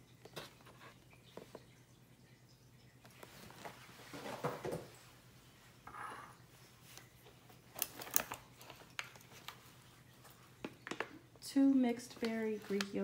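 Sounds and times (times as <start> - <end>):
plastic cups clicking and tapping: 6.9 - 11.4.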